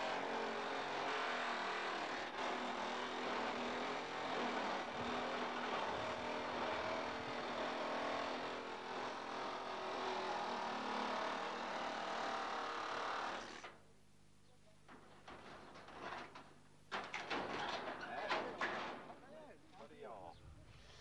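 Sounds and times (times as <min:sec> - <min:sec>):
power tool cutting sheet metal: 0:00.0 - 0:13.7.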